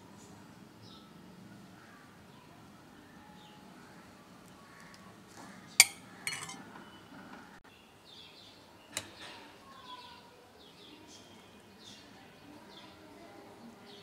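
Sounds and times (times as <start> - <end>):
faint birds chirping: 0.8 - 14.0
metal spoon clinking against bowl: 5.8 - 6.6.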